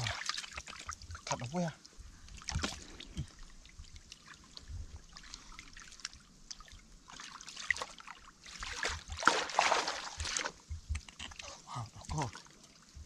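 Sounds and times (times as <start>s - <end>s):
water splashing: 0.0s - 1.6s, 2.4s - 13.0s
water trickling and dripping: 0.0s - 13.0s
hands moving through muddy water: 2.3s - 3.4s, 4.1s - 12.7s.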